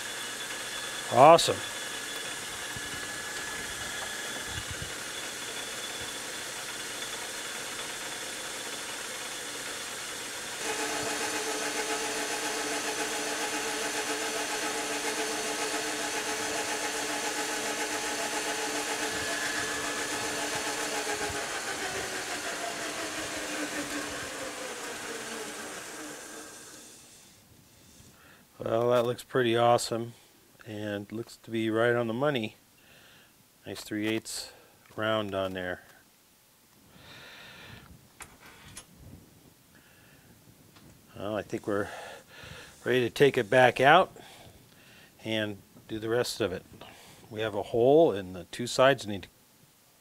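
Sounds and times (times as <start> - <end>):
metal lathe running: 0.0 - 27.1
abrasive pad polishing metal: 0.0 - 27.2.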